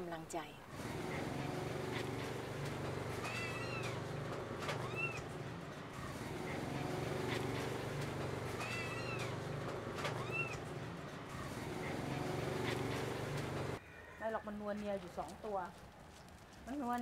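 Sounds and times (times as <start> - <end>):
small animal crying: 8.6 - 9.3.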